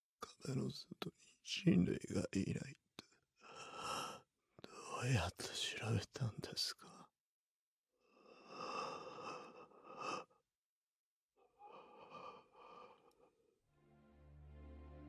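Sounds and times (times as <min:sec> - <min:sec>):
man breathing with difficulty: 0:08.3 - 0:10.3, 0:11.6 - 0:13.3.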